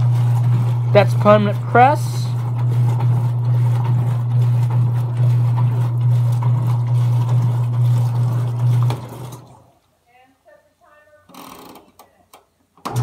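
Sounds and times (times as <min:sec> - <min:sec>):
washing machine motor humming: 0:00.0 - 0:09.8, 0:12.8 - 0:13.0.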